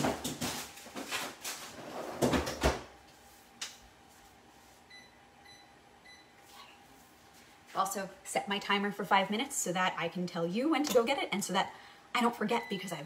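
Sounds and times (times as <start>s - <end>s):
kitchen timer beeps: 4.9s - 6.4s, 12.5s - 13.0s.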